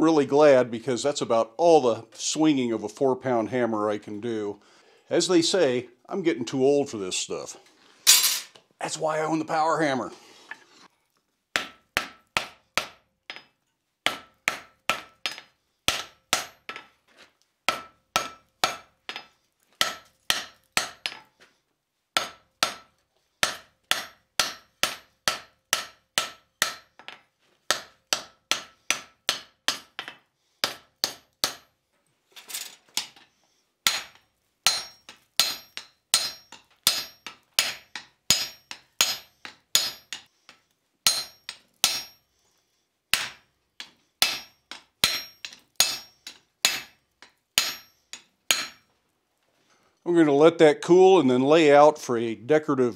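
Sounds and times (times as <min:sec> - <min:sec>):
hammer striking metal on anvil: 0:14.1 - 0:16.8, 0:17.7 - 0:21.3, 0:22.2 - 0:31.7, 0:33.9 - 0:40.3, 0:41.1 - 0:42.2, 0:43.1 - 0:48.9.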